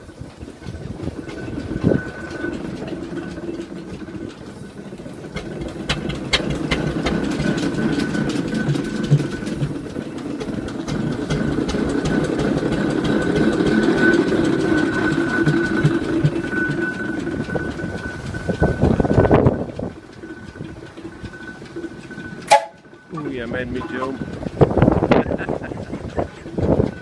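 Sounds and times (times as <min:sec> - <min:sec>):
traction engine clatter: 0:00.0 - 0:27.0
thin high tone: 0:21.2 - 0:24.4.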